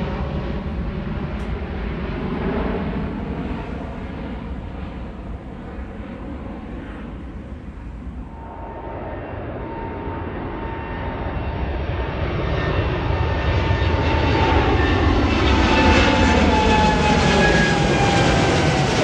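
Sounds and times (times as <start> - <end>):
high engine whine: 0.0 - 19.0
jet engines roaring overhead: 0.0 - 19.0.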